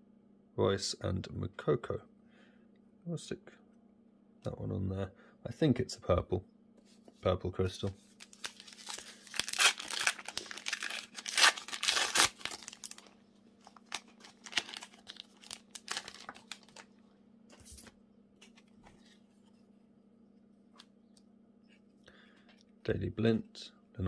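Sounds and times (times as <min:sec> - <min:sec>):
cards being handled: 0:08.0 - 0:16.9, 0:17.5 - 0:19.5
wrapper tearing and crinkling: 0:08.2 - 0:16.9.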